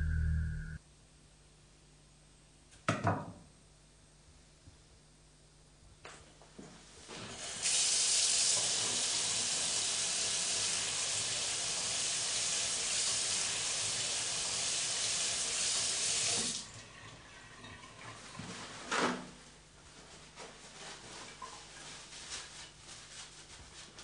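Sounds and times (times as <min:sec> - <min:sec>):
tap water running into sink: 0:07.1 - 0:18.6.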